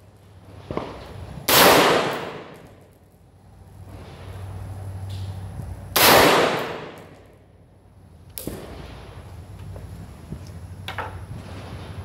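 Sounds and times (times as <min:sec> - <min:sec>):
rifle shot echo: 0:01.5 - 0:02.7, 0:06.0 - 0:07.2.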